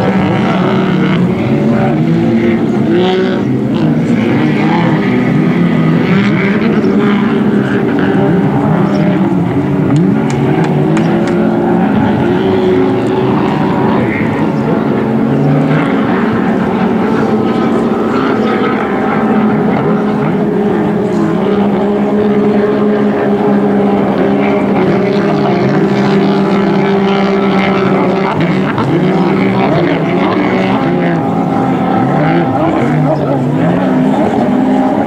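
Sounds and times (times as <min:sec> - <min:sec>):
jet ski engines racing: 0:00.0 - 0:35.0.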